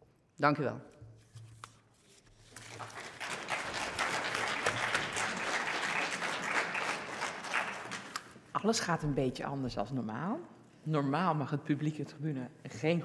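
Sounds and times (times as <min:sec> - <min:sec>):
audience applauding: 0:02.6 - 0:08.4.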